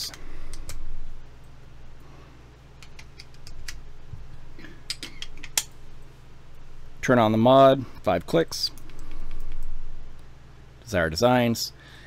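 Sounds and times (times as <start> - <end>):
steady low hum: 0.0 - 12.0
small sharp clicks and taps: 2.8 - 3.8.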